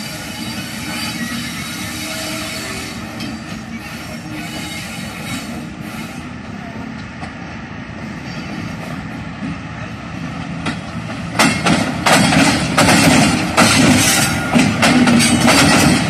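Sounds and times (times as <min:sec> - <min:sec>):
train wheels clacking: 0:00.0 - 0:06.3, 0:10.3 - 0:16.0
locomotive engines droning: 0:00.0 - 0:16.0.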